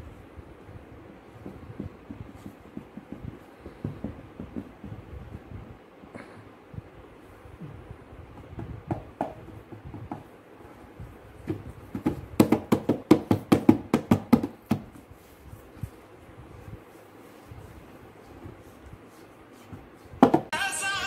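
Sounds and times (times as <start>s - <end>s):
hands slapping cardboard box: 11.4s - 15.4s, 19.6s - 20.5s.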